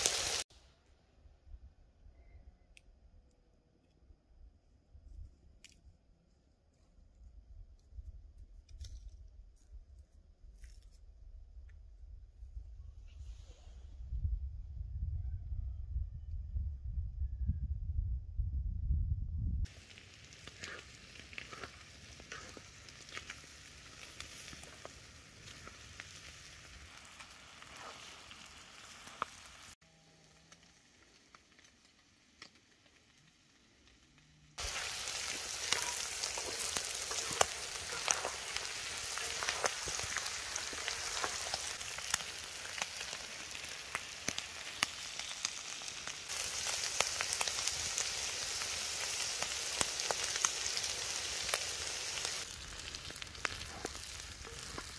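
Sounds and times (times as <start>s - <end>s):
food sizzling with small pops: 0.0s - 0.5s, 19.6s - 54.9s.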